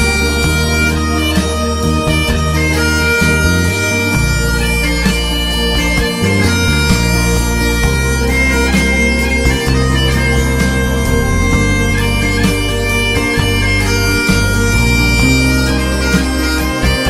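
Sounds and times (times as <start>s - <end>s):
backing track bass line: 0.0s - 17.0s
bagpipes playing melody: 0.0s - 17.0s.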